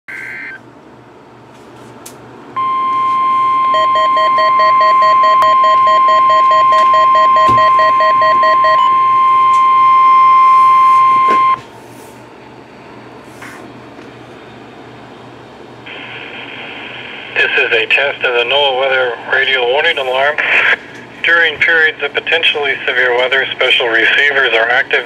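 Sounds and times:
rapid alert beeping: 0:02.6 - 0:11.6
steady warning alarm tone: 0:02.6 - 0:11.6.

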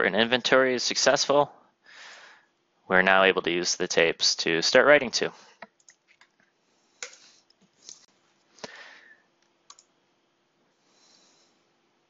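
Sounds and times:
computer mouse clicks: 0:09.7 - 0:09.9.

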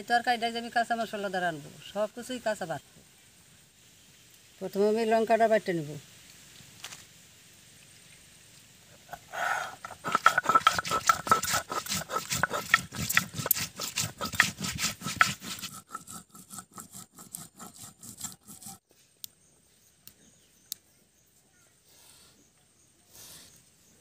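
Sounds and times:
stone roller grinding chillies: 0:09.1 - 0:18.8.

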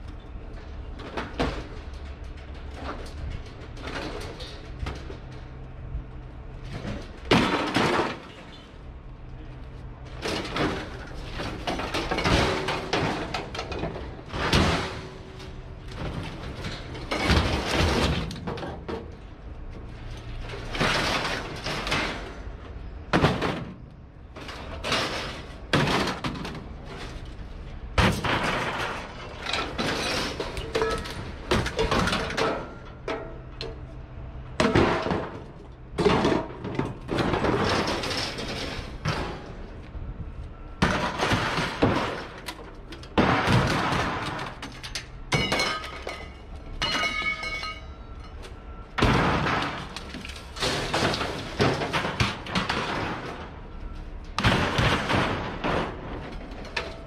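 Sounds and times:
scrap metal crashing down: 0:06.7 - 0:08.5, 0:10.2 - 0:18.9, 0:20.4 - 0:22.5, 0:24.4 - 0:27.2, 0:28.0 - 0:33.3, 0:34.6 - 0:39.7, 0:40.8 - 0:48.0, 0:49.0 - 0:53.6, 0:54.3 - 0:57.0.

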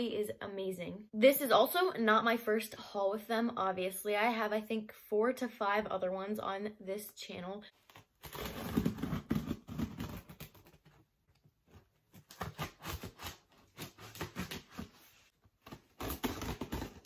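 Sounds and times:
scissors scraping through packing tape: 0:08.0 - 0:10.8, 0:12.2 - 0:15.0, 0:15.7 - 0:17.0.

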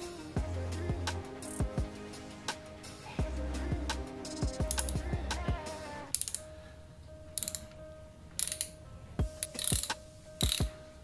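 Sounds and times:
hand ratchet clicking: 0:04.6 - 0:05.0, 0:06.1 - 0:06.5, 0:07.4 - 0:07.8, 0:08.4 - 0:08.8, 0:09.4 - 0:10.7.

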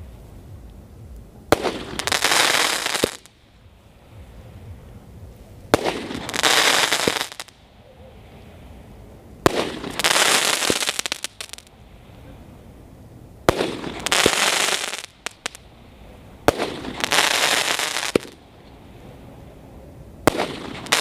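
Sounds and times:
firework crackling: 0:00.0 - 0:21.0
firework bang: 0:01.5 - 0:03.3, 0:05.7 - 0:07.5, 0:09.4 - 0:11.7, 0:13.5 - 0:15.6, 0:16.4 - 0:18.4, 0:20.2 - 0:21.0.

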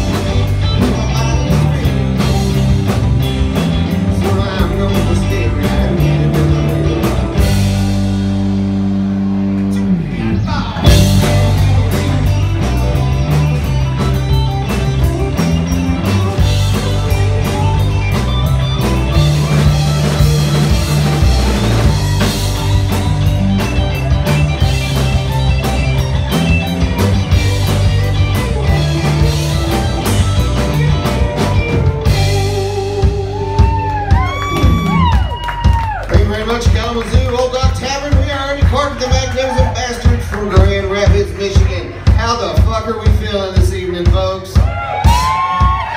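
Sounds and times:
drum kit: 0:00.0 - 0:45.9
electric guitars: 0:00.0 - 0:45.9
rock band playing: 0:00.0 - 0:45.9
guitar downward slide: 0:05.2 - 0:36.0.

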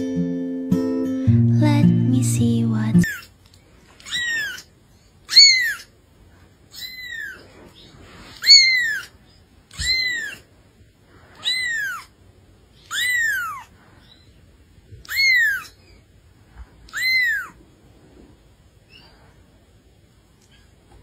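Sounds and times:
kitten mewing: 0:03.0 - 0:03.3, 0:04.0 - 0:04.7, 0:05.3 - 0:05.9, 0:06.7 - 0:07.5, 0:08.3 - 0:10.5, 0:11.4 - 0:12.1, 0:12.8 - 0:13.7, 0:15.0 - 0:15.8, 0:16.9 - 0:17.6.

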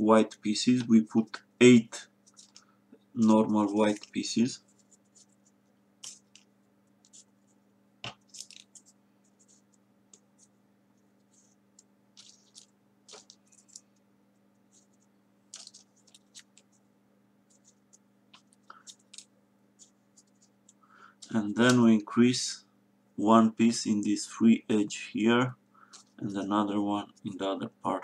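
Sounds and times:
steady low hum: 0:00.0 - 0:28.0
crisp paper ticks and rustles: 0:02.2 - 0:10.6, 0:11.2 - 0:22.0, 0:25.8 - 0:27.7.

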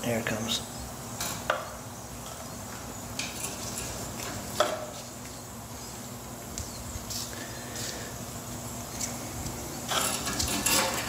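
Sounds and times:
steady low hum: 0:00.0 - 0:11.0
metal tools clinking: 0:09.9 - 0:11.0.

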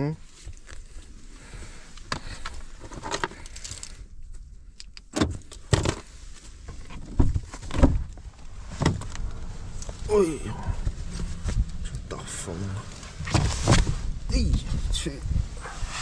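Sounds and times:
knocks and clunks: 0:06.8 - 0:12.5
car door opening: 0:07.0 - 0:14.7.

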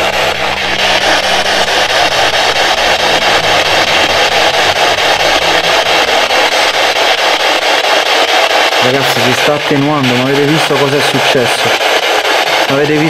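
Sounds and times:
pulsing static hiss: 0:00.0 - 0:13.0.

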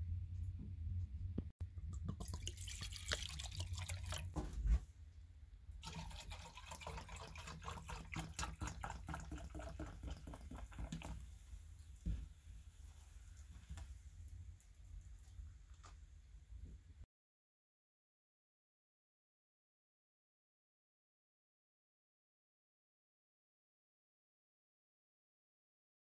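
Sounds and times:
cola pouring and fizzing: 0:01.8 - 0:04.8, 0:05.8 - 0:16.1.

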